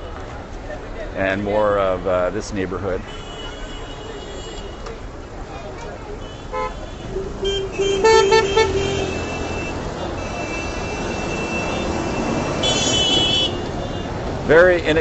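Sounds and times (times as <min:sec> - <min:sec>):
city traffic engines: 0:00.0 - 0:15.0
car horn toots: 0:03.0 - 0:04.8, 0:06.2 - 0:14.1
bus passing: 0:04.8 - 0:15.0
high-pitched horn blast: 0:06.3 - 0:13.7.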